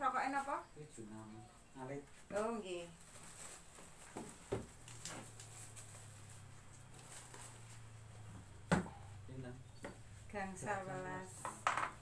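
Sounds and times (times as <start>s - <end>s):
small objects tapping on a table: 11.4s - 12.0s.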